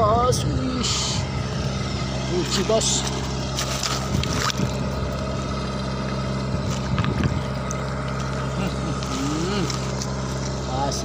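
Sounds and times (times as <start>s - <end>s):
diesel engine running: 0.0s - 11.0s
water splashing: 2.4s - 10.6s.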